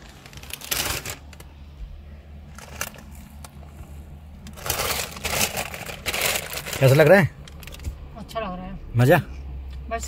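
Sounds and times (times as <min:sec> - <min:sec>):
crinkling and handling noise: 0:00.0 - 0:08.0
low steady hum: 0:00.0 - 0:10.0.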